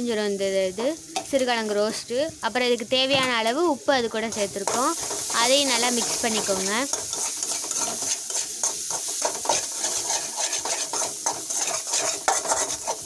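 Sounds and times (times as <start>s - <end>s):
paste sizzling in oil: 0.0s - 13.0s
metal spatula scraping pan: 4.3s - 13.0s.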